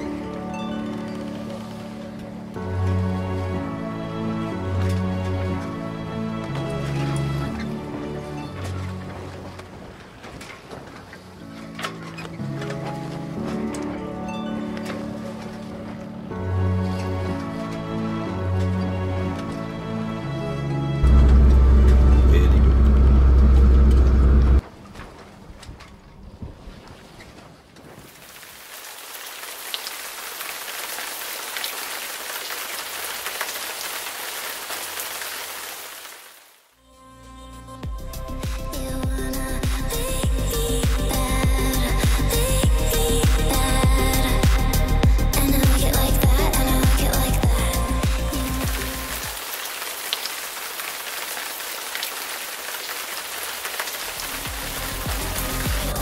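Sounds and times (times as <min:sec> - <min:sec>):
steady rain falling: 0:00.0 - 0:12.9, 0:28.0 - 0:36.7, 0:46.8 - 0:56.0
background music: 0:00.0 - 0:24.6, 0:36.8 - 0:49.4, 0:54.1 - 0:56.0.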